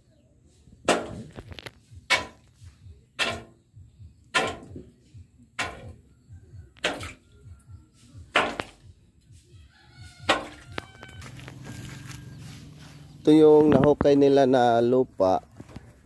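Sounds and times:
hand tool striking rock: 0.8s - 1.4s, 2.1s - 2.5s, 3.2s - 3.6s, 4.3s - 4.9s, 5.6s - 6.0s, 6.8s - 7.2s, 8.3s - 8.8s, 10.3s - 10.8s.

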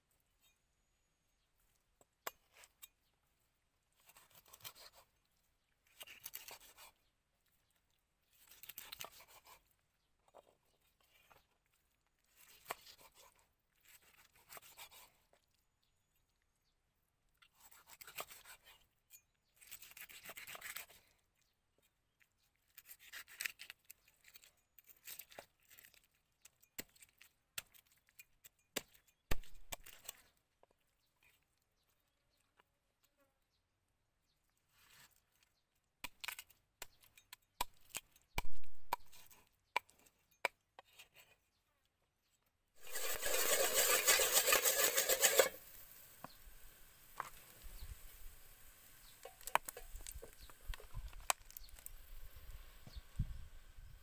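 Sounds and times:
knife sawing through fish: 4.0s - 5.0s, 6.0s - 6.9s, 8.4s - 9.6s, 12.3s - 15.2s, 17.6s - 18.8s, 19.6s - 21.1s, 42.8s - 45.6s.

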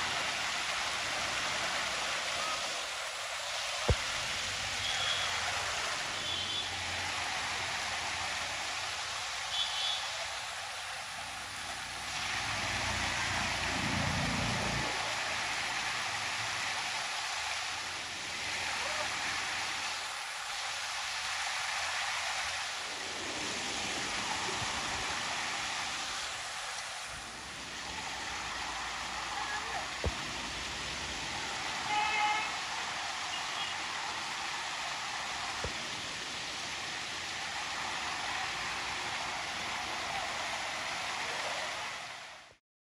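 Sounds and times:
stream rushing over boulders: 0.0s - 42.6s.

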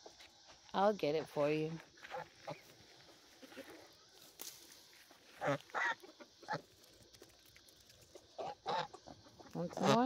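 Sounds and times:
goose calling: 5.3s - 6.6s, 8.4s - 10.0s.

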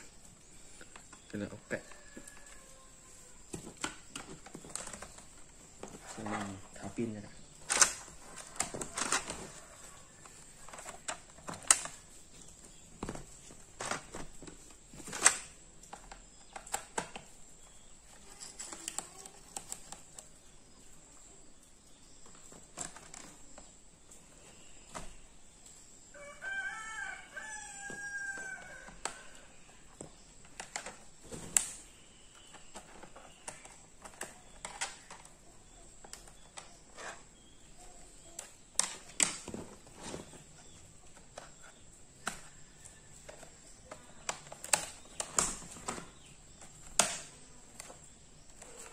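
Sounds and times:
rooster crowing: 1.8s - 3.4s, 26.1s - 29.5s.

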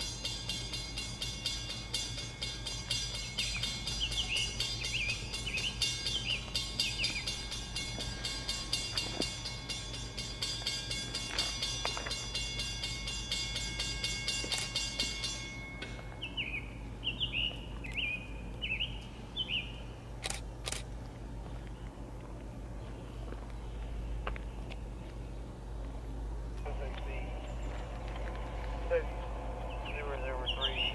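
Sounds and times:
distant locomotive engine drone: 0.0s - 30.9s
bird chirping: 2.5s - 8.4s, 16.1s - 20.0s, 22.9s - 30.9s.

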